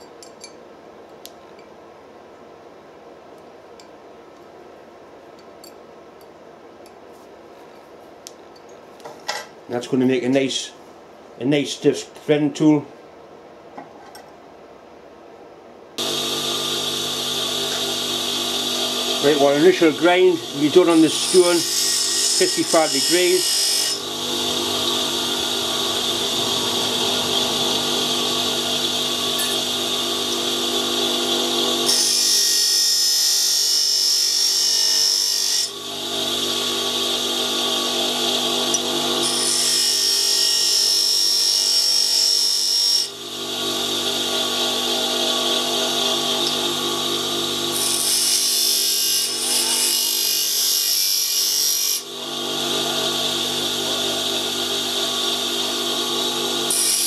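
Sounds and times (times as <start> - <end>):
high hissing grinding: 16.0 - 41.8
bench grinder motor running: 16.0 - 57.0.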